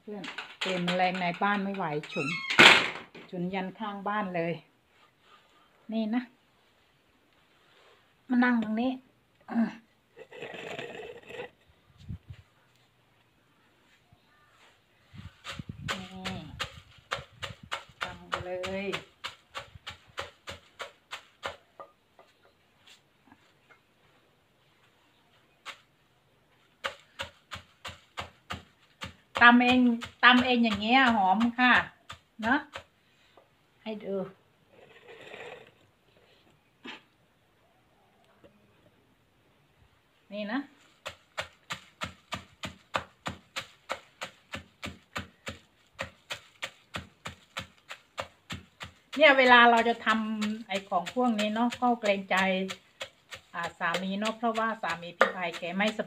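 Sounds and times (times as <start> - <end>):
wooden pestle pounding in clay mortar: 0.3 - 2.1, 15.4 - 22.0, 26.8 - 32.9, 41.0 - 56.0.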